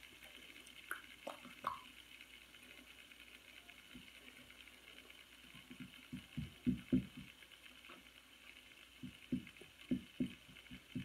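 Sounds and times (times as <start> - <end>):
faint steady hiss: 0.0 - 11.0
fingers tapping on wooden floor: 5.6 - 7.4, 9.0 - 11.0.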